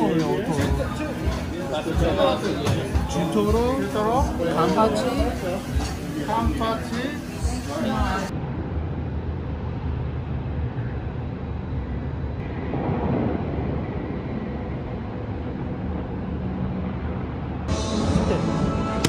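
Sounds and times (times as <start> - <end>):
vehicle low rumbling drone: 8.3 - 19.0.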